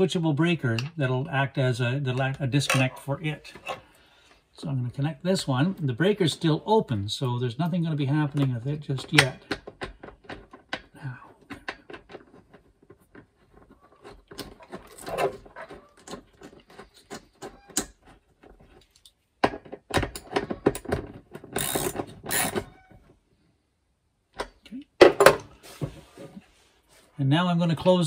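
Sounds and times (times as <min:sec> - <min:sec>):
ratchet wrench clicking: 0:21.6 - 0:22.6.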